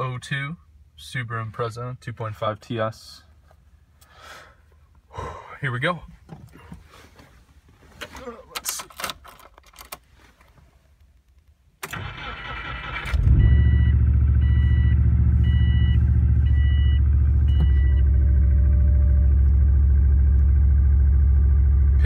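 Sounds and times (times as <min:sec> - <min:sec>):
car engine fast cold idle: 0:11.9 - 0:15.4
dashboard warning chime beeping: 0:13.3 - 0:19.1.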